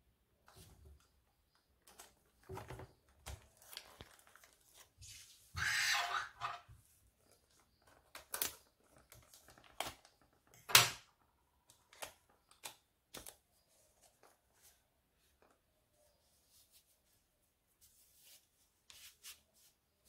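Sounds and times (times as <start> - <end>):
cellophane wrap crackling: 3.3 - 4.9, 7.8 - 10.4.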